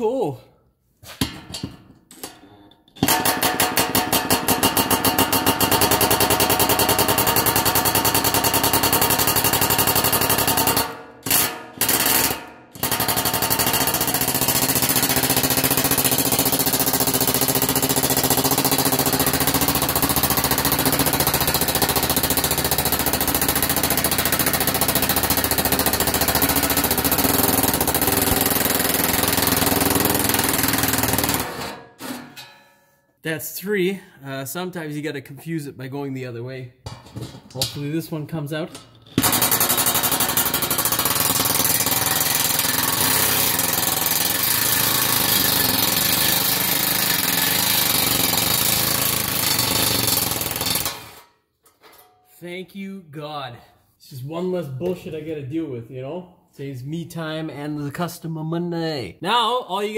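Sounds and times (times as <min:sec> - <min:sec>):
impact wrench hammering: 0:01.1 - 0:32.6, 0:36.8 - 0:37.9, 0:38.7 - 0:52.2.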